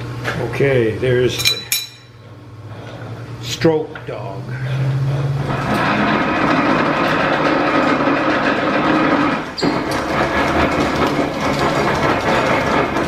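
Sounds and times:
metal planer gear clatter: 5.4s - 13.0s.

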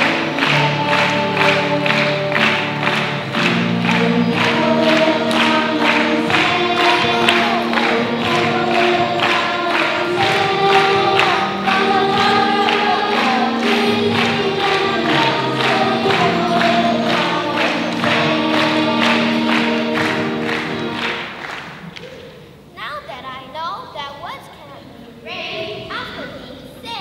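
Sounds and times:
voices singing together: 0.0s - 21.6s
steady beat: 0.0s - 21.8s.

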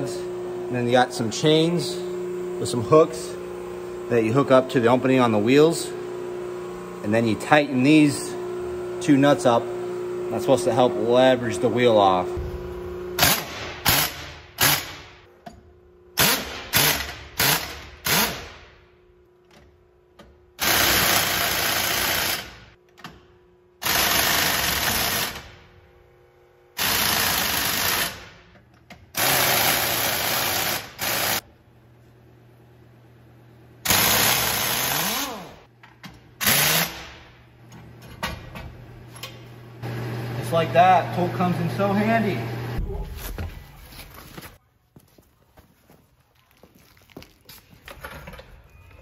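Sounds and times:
pneumatic impact wrench hammering: 13.2s - 15.6s, 16.2s - 18.8s, 20.2s - 23.2s, 23.8s - 25.6s, 26.8s - 31.4s, 33.8s - 37.3s.

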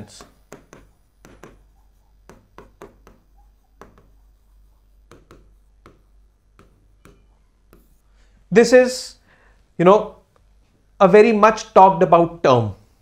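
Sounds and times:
stylus tapping on glass screen: 0.1s - 4.2s, 5.1s - 7.9s.

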